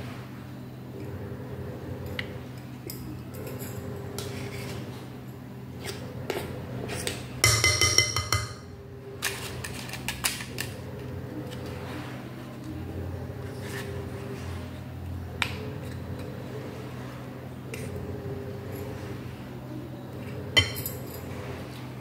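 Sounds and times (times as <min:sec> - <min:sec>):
steady low hum: 0:00.0 - 0:22.0
metal spoon scraping glass bowl: 0:04.2 - 0:04.9.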